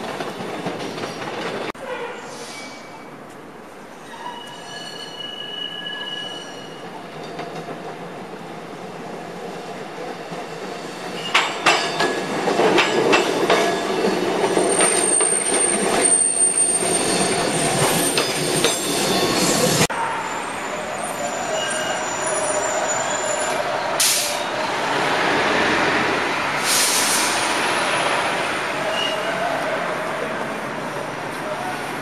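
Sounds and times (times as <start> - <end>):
trolley passing: 3.7 - 32.0
high wheel squeal: 4.0 - 6.8, 14.6 - 25.0, 28.8 - 29.6
wheels clacking over rail joints: 10.0 - 16.1.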